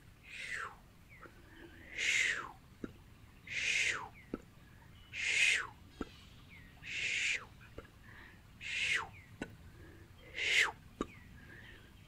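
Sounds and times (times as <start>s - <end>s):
faint mouth clicks: 10.4s - 11.2s.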